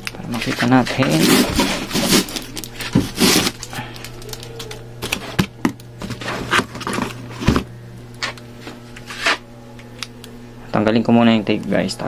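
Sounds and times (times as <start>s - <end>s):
low hum: 0.0s - 12.0s
packing tape ripping: 1.1s - 7.2s.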